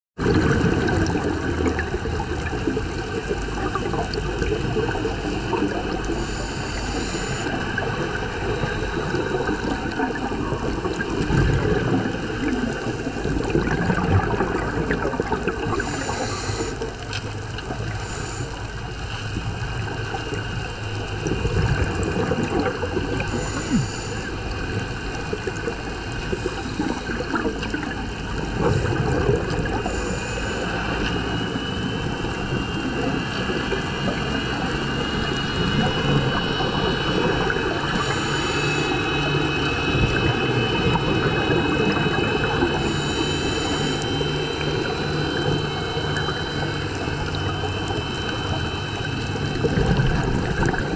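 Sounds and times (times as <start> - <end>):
bubbling: 0.2 - 50.9
muffled underwater rush: 0.2 - 50.9
regulator breathing hiss: 6.1 - 7.6, 15.8 - 16.9, 17.8 - 19.3, 23.2 - 24.5, 29.8 - 31.5, 37.9 - 39.2.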